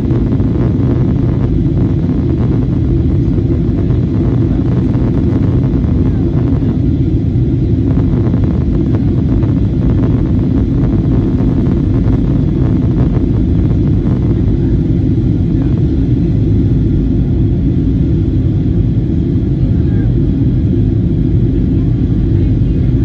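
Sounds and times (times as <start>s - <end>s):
airplane cabin low rumble: 0.0s - 23.0s.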